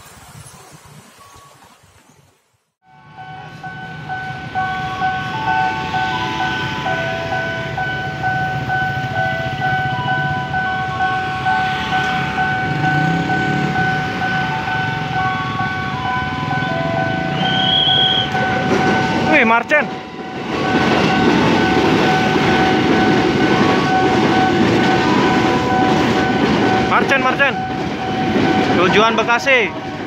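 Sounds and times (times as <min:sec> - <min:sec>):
level crossing warning tone and chime: 0:02.9 - 0:17.4, 0:18.2 - 0:30.0
idling motorbike and car engines: 0:06.8 - 0:17.5.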